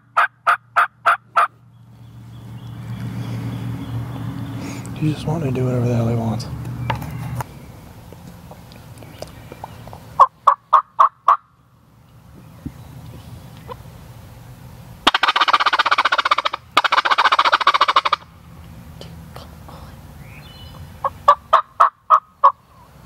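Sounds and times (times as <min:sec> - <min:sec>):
turkey gobbling: 0:00.0 - 0:01.6, 0:10.2 - 0:11.5, 0:15.0 - 0:18.3, 0:21.0 - 0:22.9.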